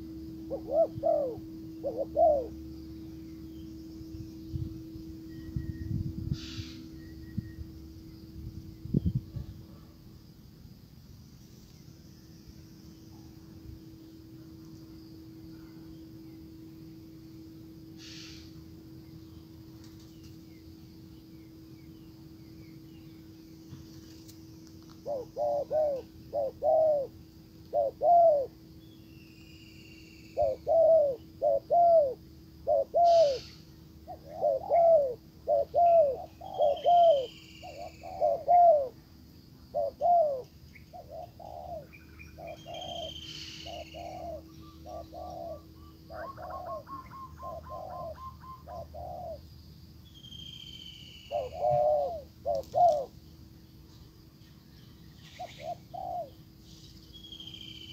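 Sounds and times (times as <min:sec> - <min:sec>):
doves cooing: 0:00.0 - 0:03.8, 0:24.9 - 0:28.6, 0:30.4 - 0:39.0, 0:39.7 - 0:49.5, 0:51.3 - 0:53.2, 0:55.3 - 0:56.5
small birds chirping: 0:19.1 - 0:57.9.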